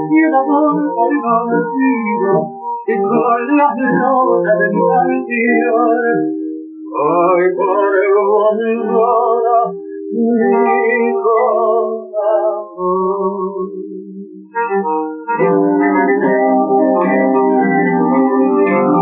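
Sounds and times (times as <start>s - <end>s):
man singing with vibrato: 0.0s - 14.8s
acoustic guitars: 0.0s - 19.0s.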